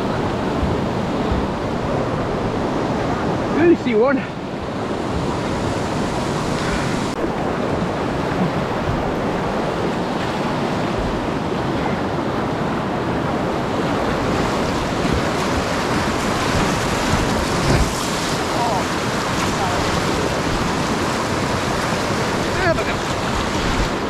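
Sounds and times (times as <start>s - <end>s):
river whitewater rushing over rocks: 0.0s - 24.0s.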